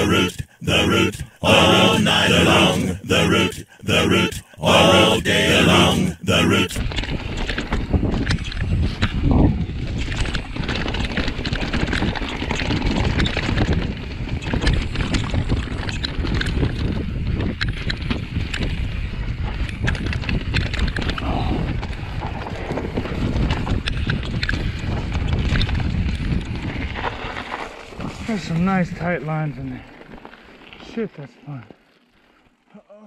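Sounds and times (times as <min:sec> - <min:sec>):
wind rumble on microphone: 0:06.8 - 0:29.8
bike rattling over bumps: 0:06.9 - 0:31.0
bike tyres crunching over leaves: 0:25.7 - 0:32.6.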